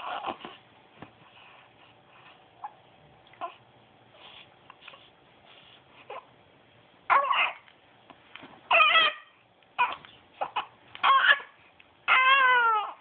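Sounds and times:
infant fussing: 0:00.0 - 0:00.6, 0:08.7 - 0:13.0.

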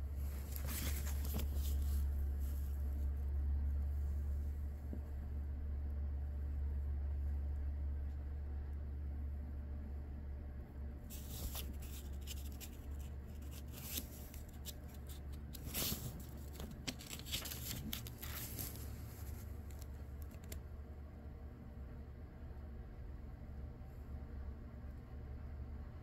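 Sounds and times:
steady low hum: 0:00.0 - 0:26.0
paper pages rustling: 0:00.2 - 0:03.1, 0:11.1 - 0:20.6.

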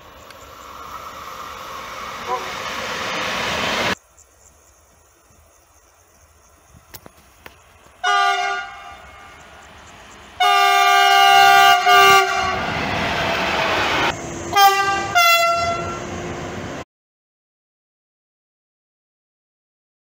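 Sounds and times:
train wheels rumbling: 0:00.0 - 0:16.8
locomotive horn blasts: 0:02.2 - 0:02.6, 0:08.0 - 0:09.4, 0:10.4 - 0:12.8, 0:14.5 - 0:16.1.

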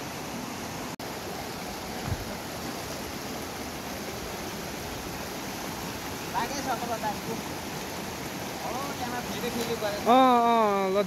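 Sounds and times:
stream rushing over rapids: 0:00.0 - 0:11.0
low thump: 0:02.0 - 0:02.3.

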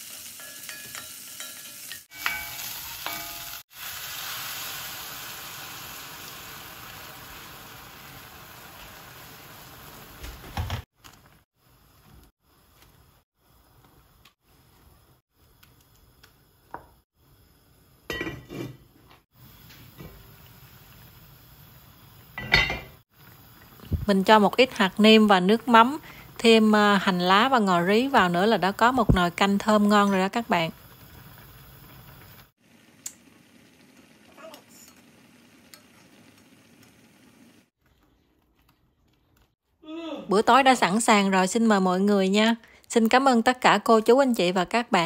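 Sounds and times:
faint simmering: 0:11.0 - 0:40.2
utensil and lid clattering on pot: 0:18.1 - 0:18.8, 0:22.4 - 0:23.0.

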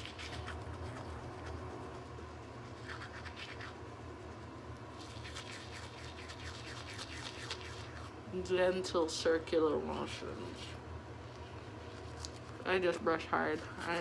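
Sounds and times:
toothbrush scrubbing teeth: 0:00.0 - 0:08.2, 0:11.8 - 0:14.0
steady low hum: 0:00.0 - 0:14.0.

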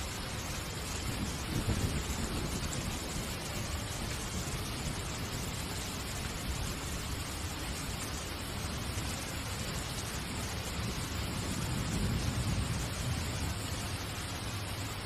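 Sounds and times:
steady hiss: 0:00.0 - 0:15.0.

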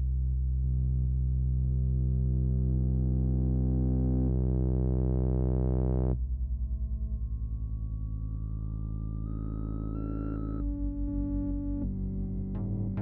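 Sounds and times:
synthesizer sustained buzzy note: 0:01.8 - 0:06.2.

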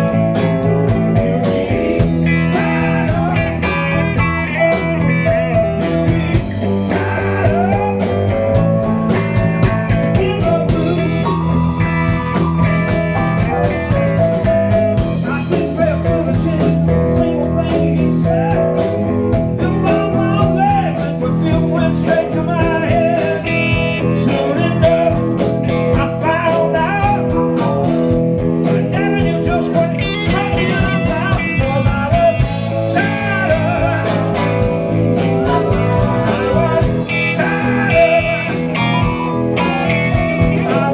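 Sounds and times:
electric guitar: 0:00.0 - 0:40.9
live blues band: 0:00.0 - 0:40.9.

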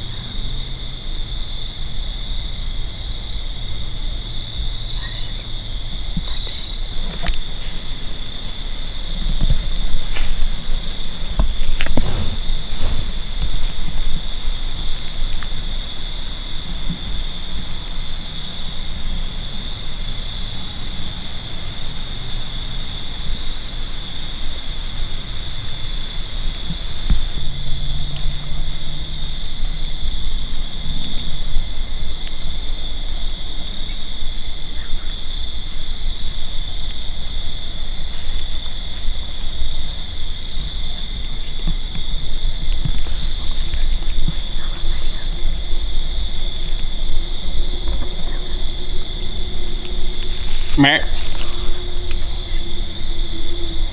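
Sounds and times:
crickets chirping: 0:00.0 - 0:53.9
low rumble: 0:39.2 - 0:53.9.

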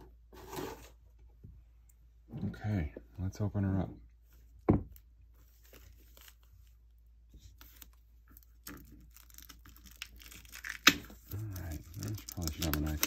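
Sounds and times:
shrink-wrap crinkling and scratching: 0:07.4 - 0:13.0.

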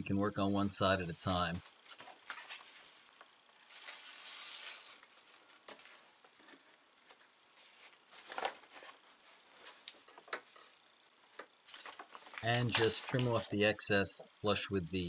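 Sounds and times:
sailcloth rustling and rubbing: 0:01.0 - 0:06.7.

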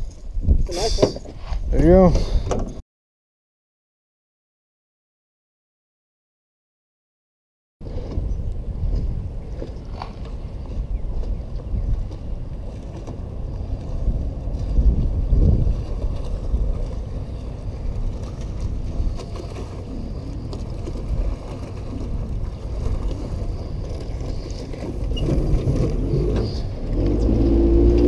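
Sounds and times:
wind rumbling on microphone: 0:00.0 - 0:02.8, 0:07.8 - 0:28.0
boat engine running low: 0:07.8 - 0:28.0.

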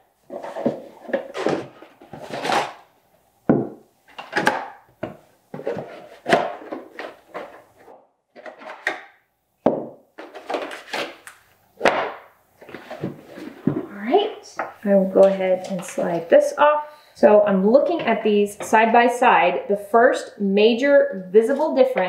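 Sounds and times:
cardboard packaging rustling: 0:00.2 - 0:02.9, 0:04.1 - 0:09.0, 0:10.2 - 0:14.0.

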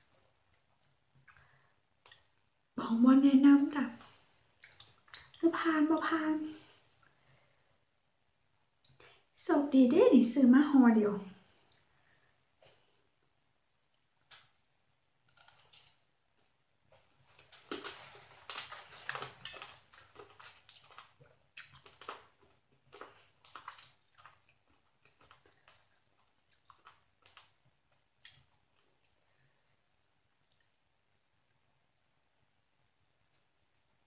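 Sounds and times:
crunchy chewing close-up: 0:04.0 - 0:05.4, 0:15.3 - 0:16.0, 0:16.9 - 0:29.6.

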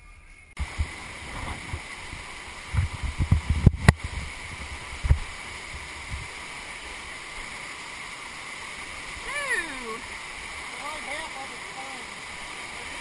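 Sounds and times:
low knocks and bumps: 0:00.6 - 0:05.3
river rapids rushing: 0:00.6 - 0:13.0.

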